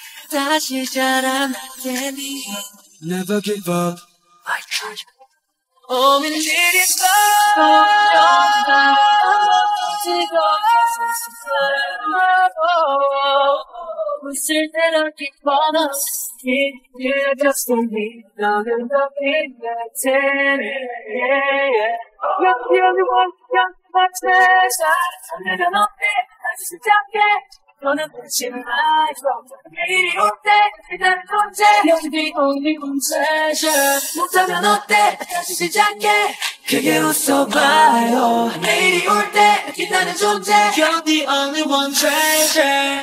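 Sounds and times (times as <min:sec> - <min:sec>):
young men singing pop melody: 0:00.0 - 0:05.1, 0:05.9 - 0:12.6, 0:31.4 - 0:43.0.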